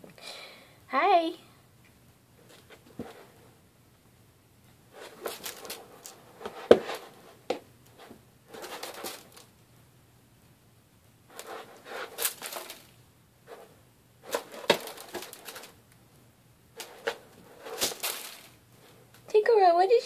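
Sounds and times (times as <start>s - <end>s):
cat litter granules scraping: 8.5s - 9.4s, 11.3s - 12.9s, 13.5s - 15.8s, 16.8s - 18.6s.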